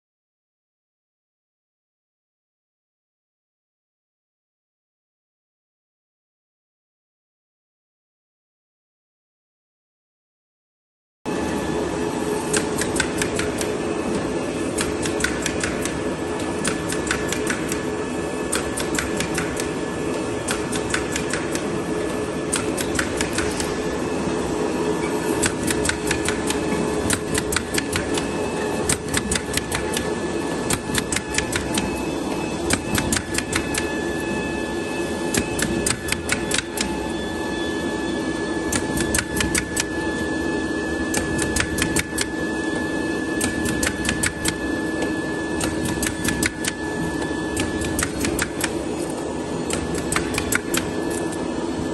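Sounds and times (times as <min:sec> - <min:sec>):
machine hum with thin whine: 0:11.3 - 0:51.9.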